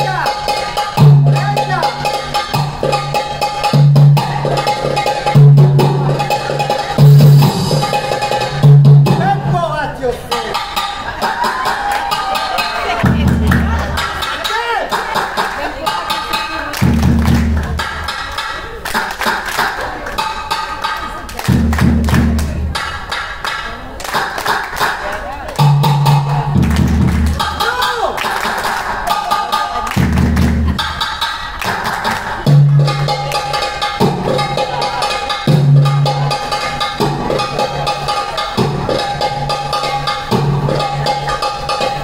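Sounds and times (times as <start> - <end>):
hand percussion: 0.0 - 9.5, 10.3 - 42.0
belly-dance music: 0.0 - 42.0
deep bass: 13.0 - 14.2, 16.8 - 18.1, 21.5 - 22.8, 25.6 - 27.7, 30.0 - 31.0.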